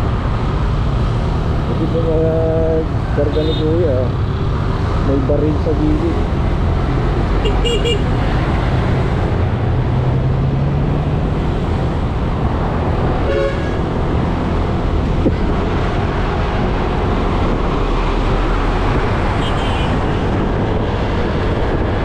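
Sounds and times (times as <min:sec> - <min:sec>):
surrounding traffic: 0:00.0 - 0:22.0
wind and road rush: 0:00.0 - 0:22.0
vehicle horn toot: 0:07.4 - 0:08.0, 0:13.3 - 0:13.8.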